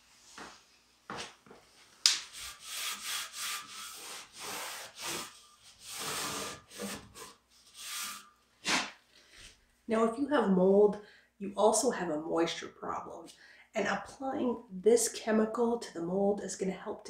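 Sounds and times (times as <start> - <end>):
rag scrubbing wood: 2.0 - 9.0.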